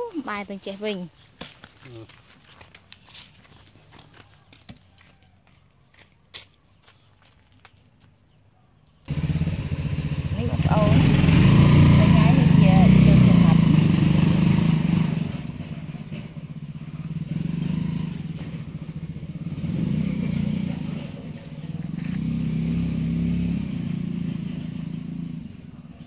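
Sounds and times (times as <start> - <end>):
small engine pulsing rumble: 9.1 - 26.0.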